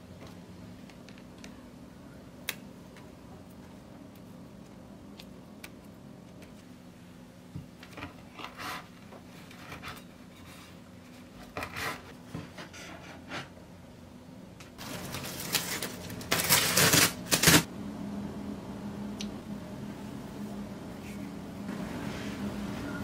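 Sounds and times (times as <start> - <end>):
plastic wrap crinkling: 14.8 - 17.7.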